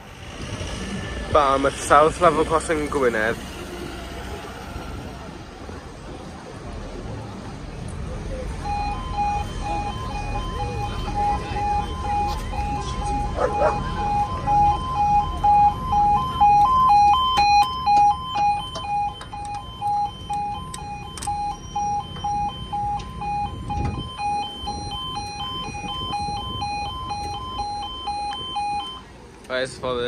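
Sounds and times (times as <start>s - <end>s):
two-tone level crossing alarm: 8.6s - 29.1s.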